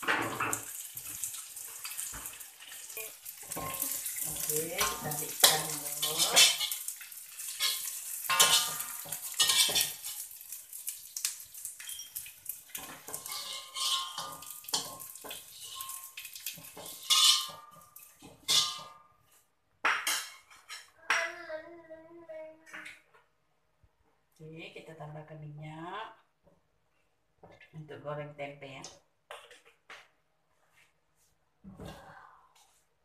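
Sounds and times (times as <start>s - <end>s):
metal fork scraping a wok: 3.4s - 10.3s, 12.8s - 18.9s.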